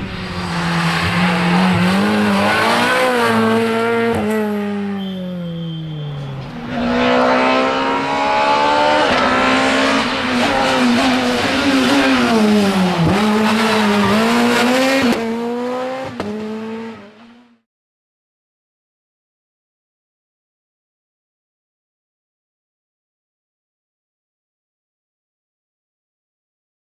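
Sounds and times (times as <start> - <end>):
rally car engine driving away: 0.0 - 17.5
rally car engine revving hard: 0.3 - 4.9, 6.6 - 17.5.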